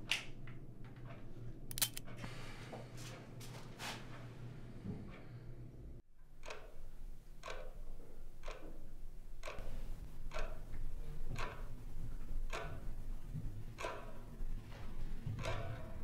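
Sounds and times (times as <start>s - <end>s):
wall clock ticking: 6.3s - 16.0s.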